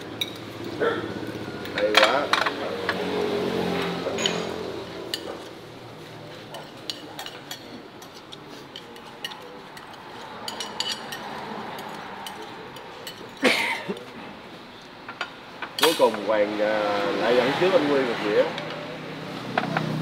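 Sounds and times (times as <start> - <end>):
spoons clinking on ceramic plates: 0.2 - 0.7, 4.1 - 5.5, 6.5 - 14.2.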